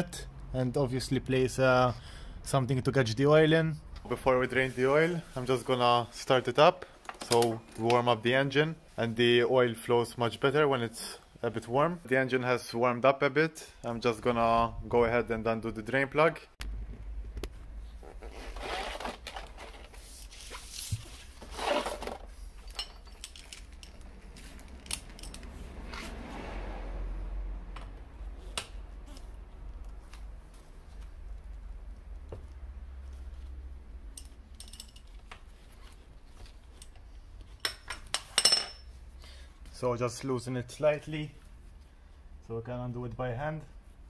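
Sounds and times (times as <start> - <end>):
metal tools clinking: 22.6 - 25.5, 34.1 - 35.2, 37.6 - 38.9.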